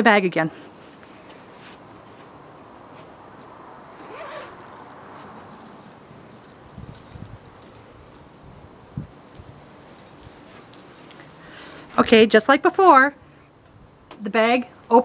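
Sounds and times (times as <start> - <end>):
zipper being drawn open: 3.9 - 5.6
metal tools clinking: 6.6 - 11.2.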